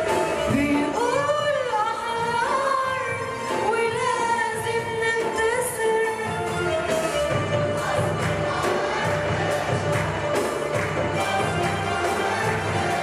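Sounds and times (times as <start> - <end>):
woman singing: 0.0 - 7.0
music ensemble: 0.0 - 13.0.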